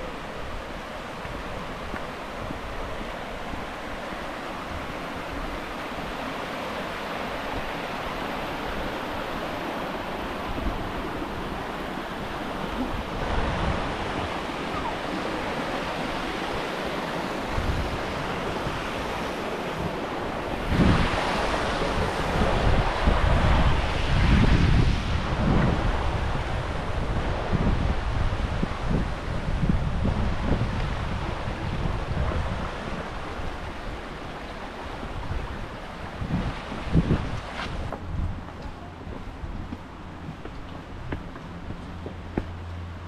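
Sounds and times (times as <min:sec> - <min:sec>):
wind gusts buffeting microphone: 0:00.0 - 0:42.6
rushing wind: 0:00.0 - 0:43.0.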